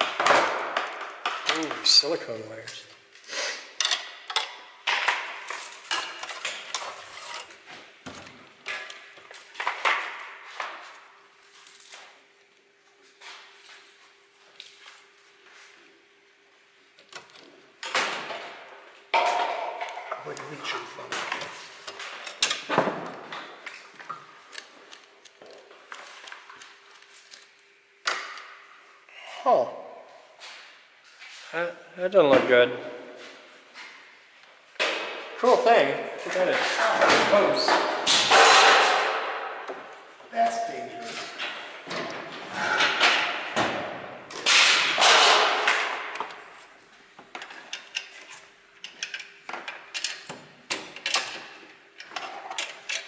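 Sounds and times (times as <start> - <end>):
tools clicking and clinking: 48.8 - 53.0.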